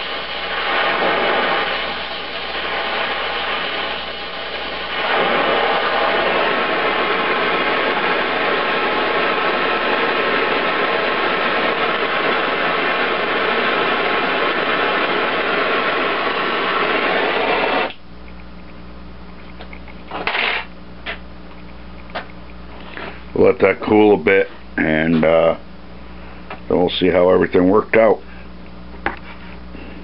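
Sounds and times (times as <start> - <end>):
torch flame hissing: 0.0 - 18.0.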